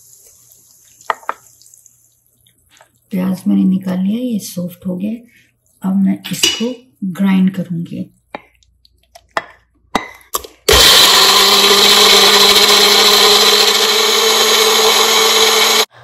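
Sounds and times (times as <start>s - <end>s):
electric blender running: 10.7s - 15.9s.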